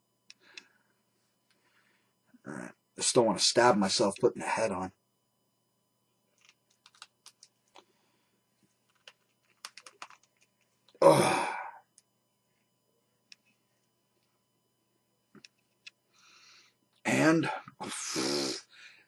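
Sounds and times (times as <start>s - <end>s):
person sighing: 11.0s - 11.8s.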